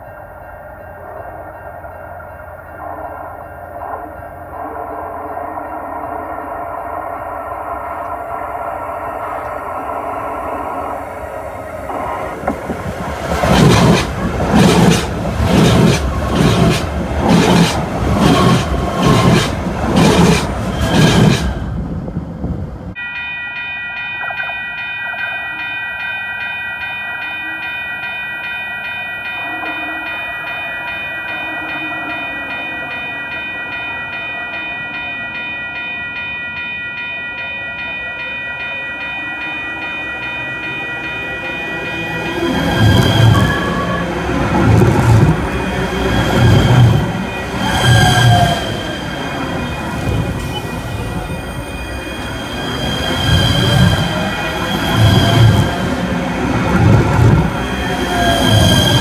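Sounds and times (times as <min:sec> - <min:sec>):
high pulsing tones: 0:00.0 - 0:19.8
train wheels clacking: 0:11.9 - 0:21.6, 0:39.8 - 0:59.0.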